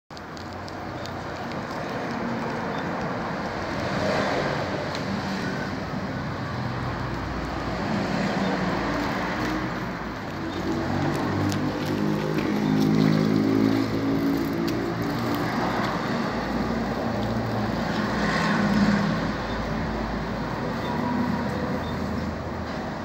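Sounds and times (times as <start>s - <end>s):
distant road traffic rumble: 0.1s - 23.0s.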